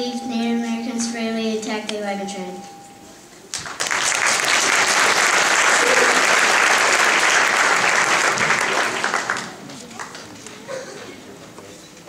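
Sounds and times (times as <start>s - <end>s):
audience clapping: 3.5s - 10.6s.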